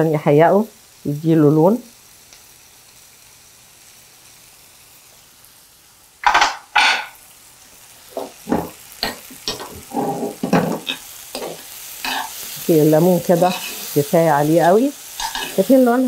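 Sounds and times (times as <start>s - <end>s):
lemon pieces sizzling in a pan: 0.0s - 16.0s
spoon scraping a pan: 6.2s - 7.2s, 8.2s - 14.1s, 15.0s - 15.7s.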